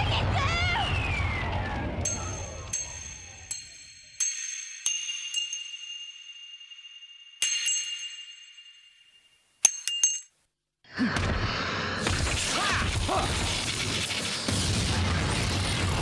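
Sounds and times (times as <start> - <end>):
ring clinking on steel grating: 2.1 - 10.4.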